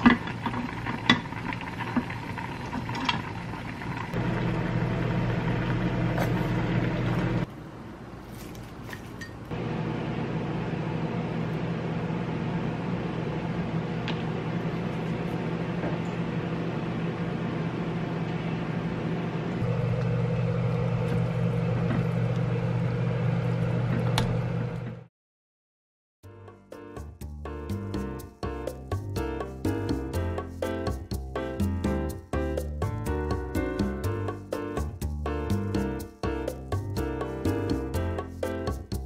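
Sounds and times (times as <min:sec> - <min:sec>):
electric motor hum: 0:04.2 - 0:07.5, 0:09.5 - 0:25.1.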